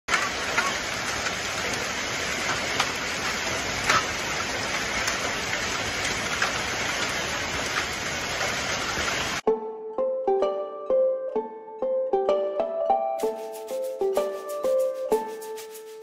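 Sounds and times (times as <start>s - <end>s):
hail and rain hissing: 0.1s - 9.4s
hailstones clicking on hard surfaces: 0.1s - 9.4s.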